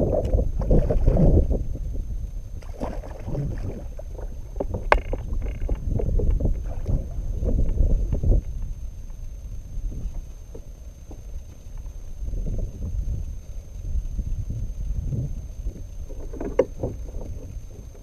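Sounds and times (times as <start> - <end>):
wind rumbling on microphone: 0.0 - 18.0
fish thrashing and splashing: 2.6 - 6.0.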